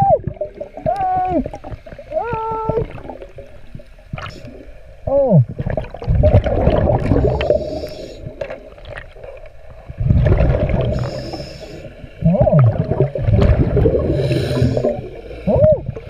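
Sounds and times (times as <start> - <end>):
exhaled bubbles underwater: 0.0 - 16.0.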